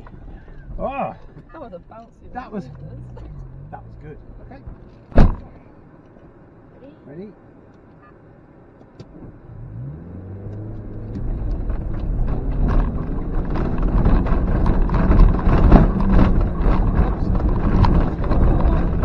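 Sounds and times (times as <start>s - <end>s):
car engine revving: 2.3s - 5.6s, 9.1s - 19.0s
suspension knocks and clatter: 4.2s - 6.3s, 10.7s - 19.0s.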